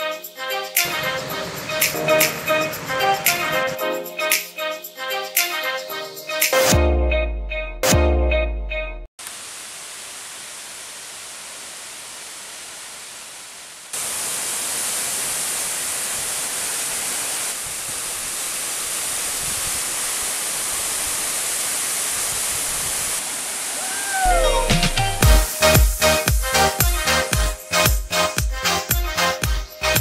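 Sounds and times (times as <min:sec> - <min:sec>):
waterfall rushing: 0:00.6 - 0:03.9, 0:09.2 - 0:27.5.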